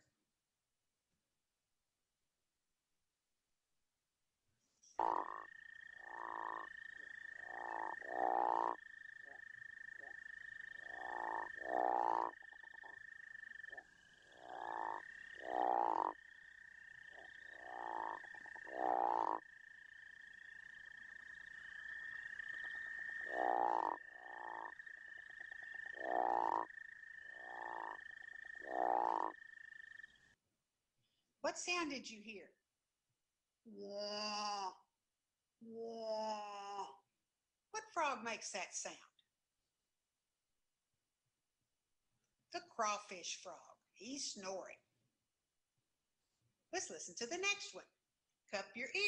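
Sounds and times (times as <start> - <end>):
frogs snoring calls: 4.8 - 30.4.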